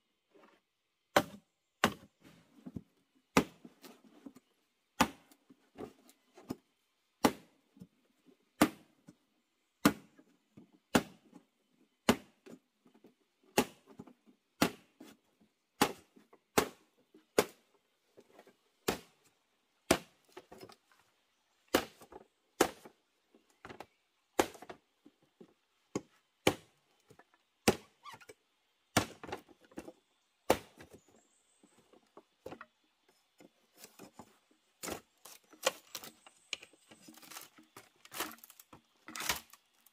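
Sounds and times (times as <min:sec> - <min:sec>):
machete chopping bamboo: 0:01.1 - 0:02.1, 0:03.3 - 0:03.7, 0:05.0 - 0:05.4, 0:07.2 - 0:07.6, 0:08.6 - 0:09.0, 0:09.8 - 0:10.2, 0:10.9 - 0:11.3, 0:12.0 - 0:12.5, 0:13.5 - 0:13.9, 0:14.6 - 0:15.2, 0:15.8 - 0:17.7, 0:18.8 - 0:19.2, 0:19.8 - 0:20.4, 0:21.7 - 0:23.0, 0:24.3 - 0:24.8, 0:25.9 - 0:26.8, 0:27.6 - 0:28.0, 0:28.9 - 0:29.4, 0:30.4 - 0:31.0, 0:34.8 - 0:36.2, 0:39.2 - 0:39.6.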